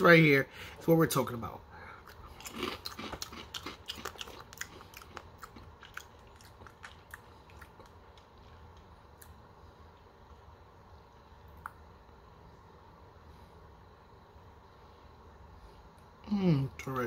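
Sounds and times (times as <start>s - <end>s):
person chewing crunchy cereal: 2.0s - 9.3s.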